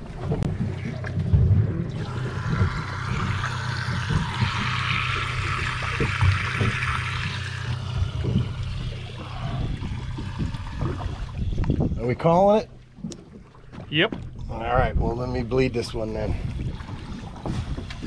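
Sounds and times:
steady low hum: 0:00.0 - 0:18.0
water gushing from hose: 0:01.9 - 0:11.6.

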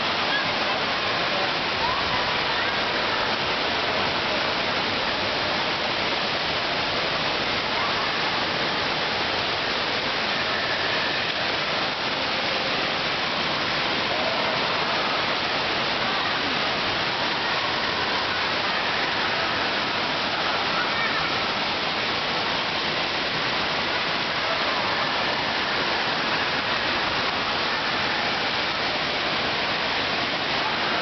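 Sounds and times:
water rushing and splashing: 0:00.0 - 0:31.0.

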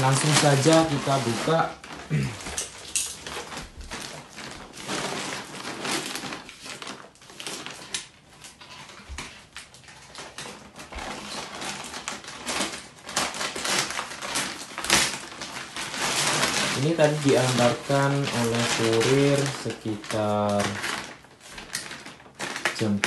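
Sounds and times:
paper rustling and crinkling: 0:00.0 - 0:23.0
box cutter slitting paper: 0:10.0 - 0:23.0.

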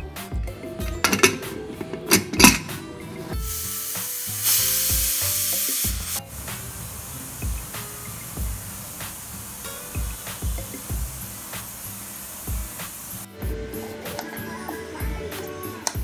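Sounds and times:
pressure cooker hissing steam: 0:03.4 - 0:13.3.

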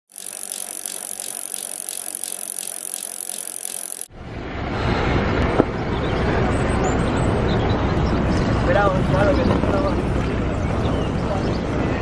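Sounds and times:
evenly spaced ticks: 0:00.1 - 0:04.1.

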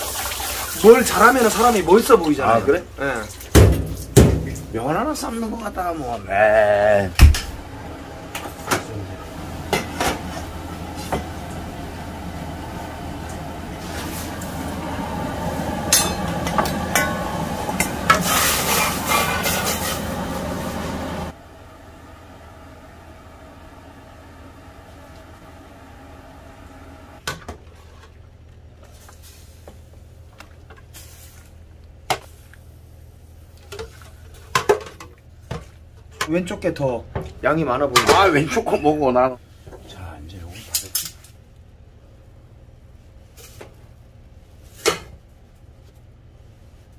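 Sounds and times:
steady low hum: 0:02.3 - 0:46.9
utensils and dishes clinking: 0:15.9 - 0:20.0.

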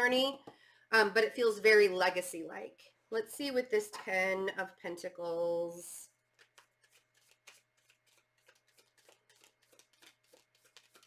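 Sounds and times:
cards being shuffled: 0:06.3 - 0:11.0.

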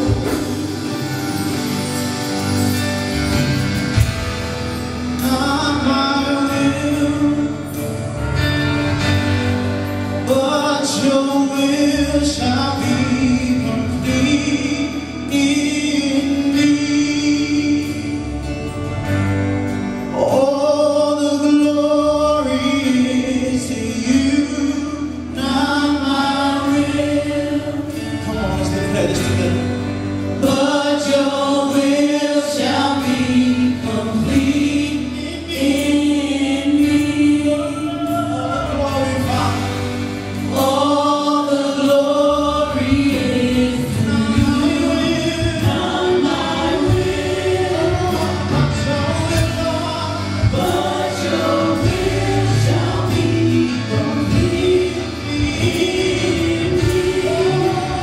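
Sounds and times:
drums: 0:00.0 - 0:58.0
guitars: 0:00.0 - 0:58.0
singers singing together: 0:20.2 - 0:29.6, 0:30.2 - 0:58.0.

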